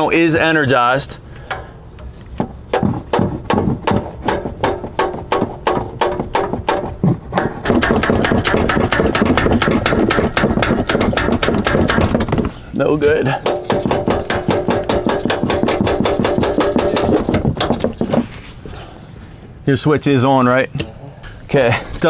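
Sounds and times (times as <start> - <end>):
tool banging on metal starter motor: 1.4 - 12.5, 13.4 - 18.2.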